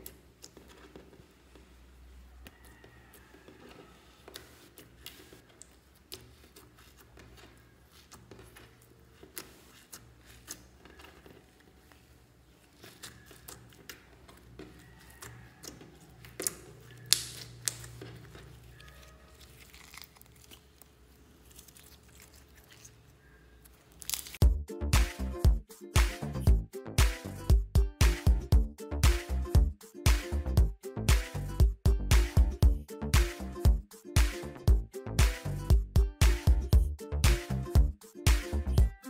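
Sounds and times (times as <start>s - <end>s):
slime kneaded by hand: 0.0s - 24.4s.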